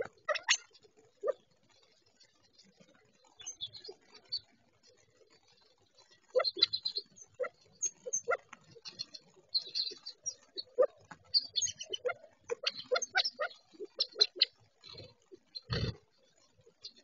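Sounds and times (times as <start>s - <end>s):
quail clucking: 0.0s - 1.4s, 6.3s - 16.0s.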